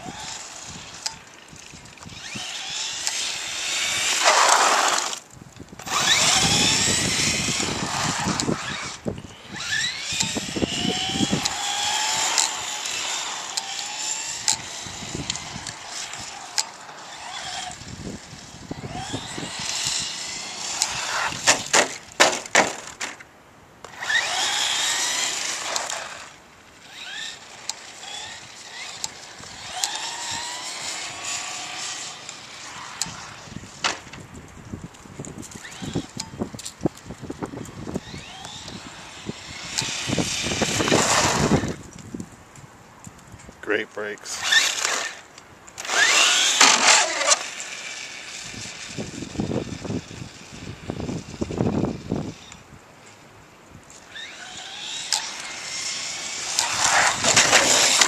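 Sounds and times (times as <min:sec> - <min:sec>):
electric motor whining: 0:00.0 - 0:23.0, 0:23.8 - 0:34.2, 0:35.4 - 0:36.7, 0:37.3 - 0:42.2, 0:44.2 - 0:52.7, 0:53.9 - 0:58.0
sharp clicks: 0:09.9 - 0:11.6, 0:12.2 - 0:16.8.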